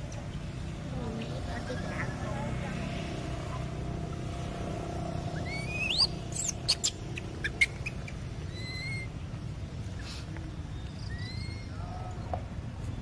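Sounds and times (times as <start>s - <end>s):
steady low hum: 0.0s - 13.0s
macaque squealing: 5.3s - 9.2s.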